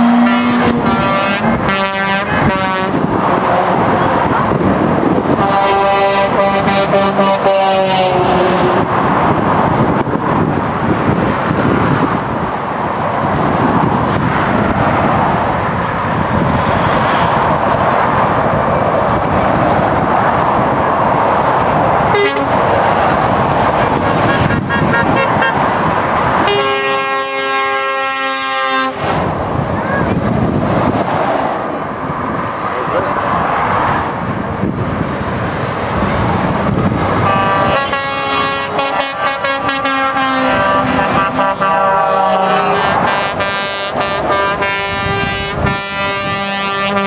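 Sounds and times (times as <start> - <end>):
truck air horns: 0.0 - 4.0, 5.3 - 8.8, 22.1 - 25.7, 26.4 - 29.2, 37.2 - 47.0
traffic passing: 0.0 - 47.0.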